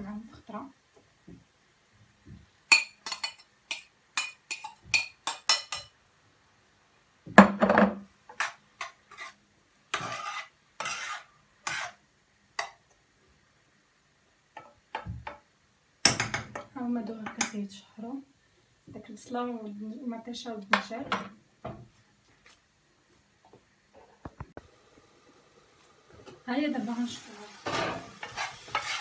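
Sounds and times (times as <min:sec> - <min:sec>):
spoon stirring vegetables in pan: 0:02.2 - 0:06.0, 0:08.1 - 0:13.0, 0:14.5 - 0:17.6, 0:25.3 - 0:29.0.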